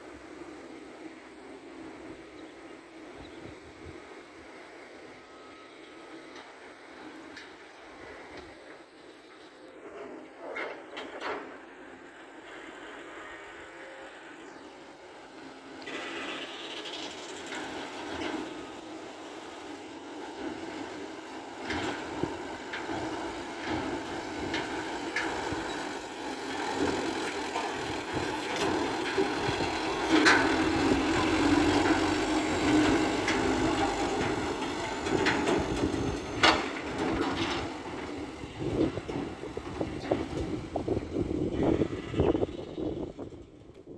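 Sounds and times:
truck engine running: 0:17.3 - 0:43.7.

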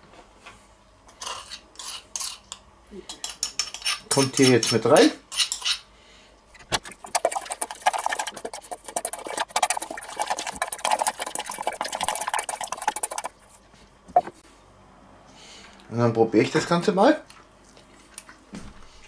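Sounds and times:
spice granules rattling in metal bowl: 0:06.9 - 0:13.6.

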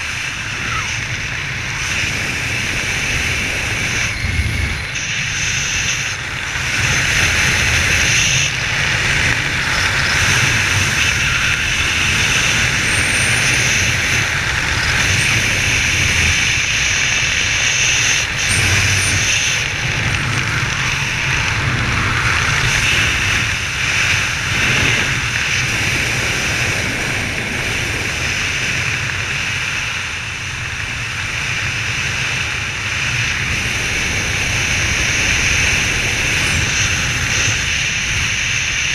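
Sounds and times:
wind rushing over camera: 0:00.0 - 0:38.9.

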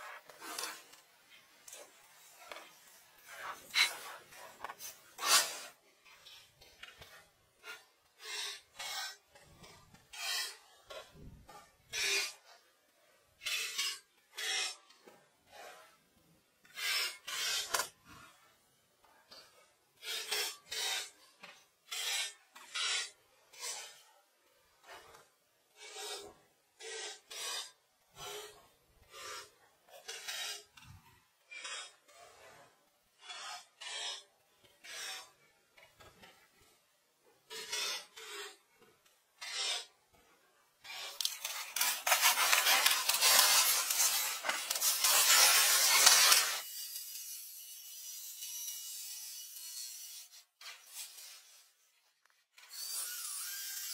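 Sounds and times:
pencil scratching on paper: 0:33.2 - 0:35.3.

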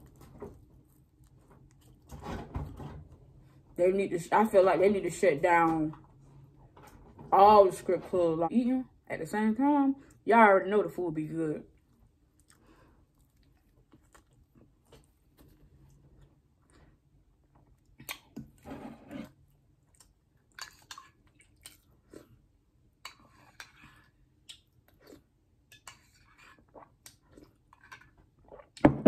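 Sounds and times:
chewing and mouth sounds: 0:11.7 - 0:18.6, 0:19.5 - 0:28.8.

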